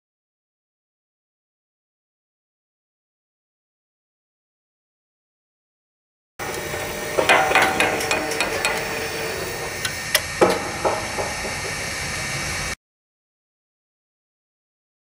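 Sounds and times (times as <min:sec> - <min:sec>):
metallic clanks and knocks: 0:06.4 - 0:12.4
steady hiss: 0:06.4 - 0:12.8.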